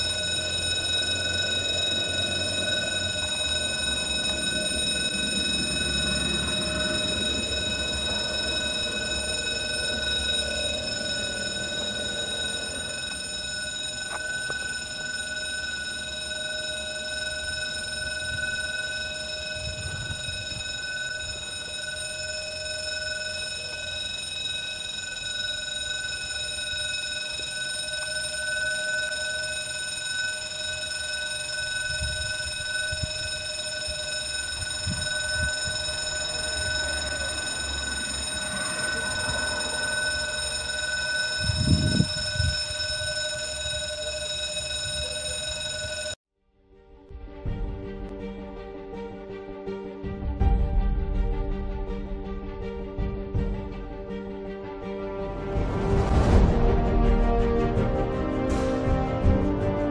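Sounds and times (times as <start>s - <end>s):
railway warning alarm ringing: 0.0s - 46.2s.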